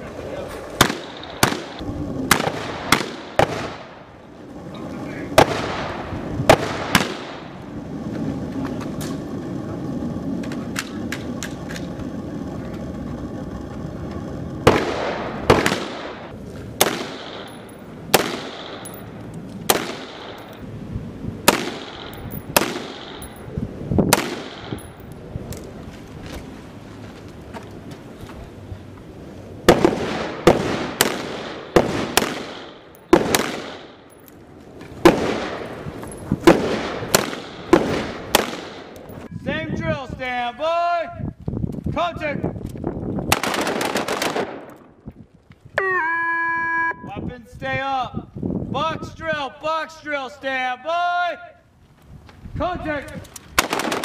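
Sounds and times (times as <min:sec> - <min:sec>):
distant gunshots: 0:00.8 - 0:04.0, 0:05.4 - 0:07.5, 0:14.6 - 0:18.9, 0:19.7 - 0:20.5, 0:21.4 - 0:23.4, 0:24.1 - 0:24.8, 0:29.7 - 0:34.1, 0:35.0 - 0:35.8, 0:36.4 - 0:39.0, 0:43.3 - 0:44.7, 0:53.6 - 0:54.0
rifle shots with echo: 0:00.8 - 0:04.0, 0:05.4 - 0:07.5, 0:14.6 - 0:19.0, 0:19.6 - 0:20.5, 0:21.4 - 0:23.4, 0:24.1 - 0:24.9, 0:29.7 - 0:34.1, 0:35.0 - 0:35.8, 0:36.4 - 0:39.0, 0:43.3 - 0:44.7, 0:53.6 - 0:54.0.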